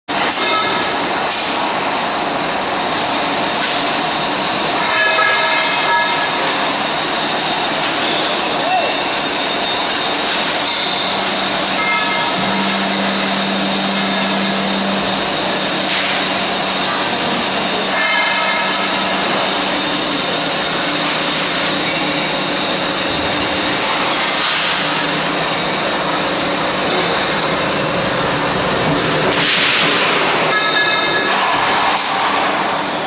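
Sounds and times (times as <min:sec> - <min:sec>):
drilling machine running: 0:04.0 - 0:29.0
high whining tones: 0:04.8 - 0:28.3.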